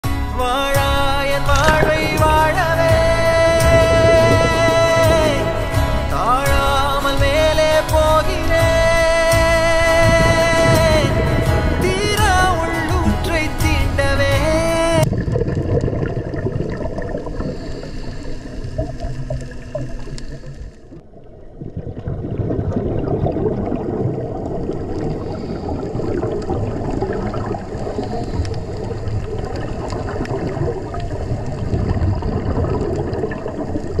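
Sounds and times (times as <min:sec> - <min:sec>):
muffled underwater noise: 0:00.4 - 0:07.6, 0:14.8 - 0:34.0
bubbling of exhaled air: 0:01.4 - 0:06.1, 0:15.0 - 0:34.0.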